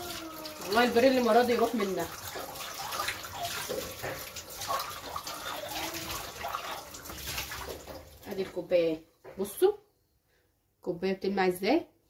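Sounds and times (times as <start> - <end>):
water sloshing and splashing: 0.0 - 8.7.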